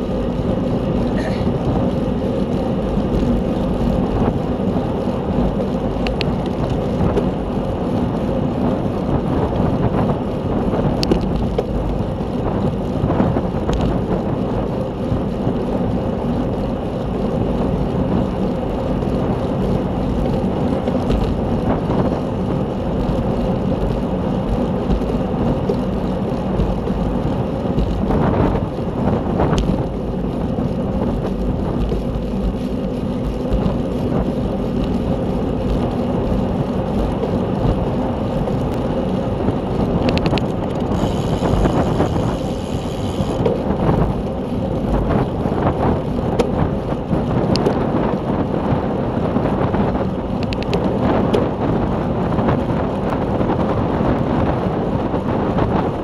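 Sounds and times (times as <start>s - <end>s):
bicycle road and drivetrain noise: 0.0s - 56.0s
wind rushing over microphone: 0.0s - 56.0s.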